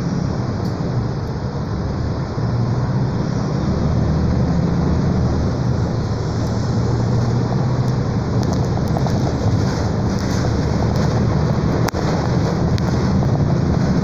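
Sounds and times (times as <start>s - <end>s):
bus diesel engine humming: 0.0s - 14.0s
road and body noise: 0.0s - 14.0s.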